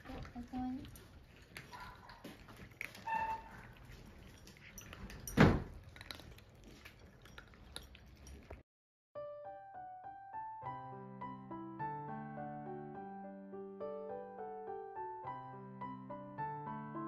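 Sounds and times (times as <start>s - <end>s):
soft piano music: 9.2s - 17.0s.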